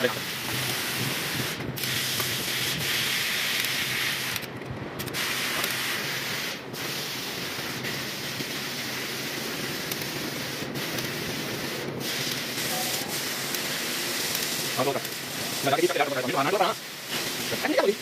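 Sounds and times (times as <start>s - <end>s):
steady hissing noise: 0.0s - 18.0s.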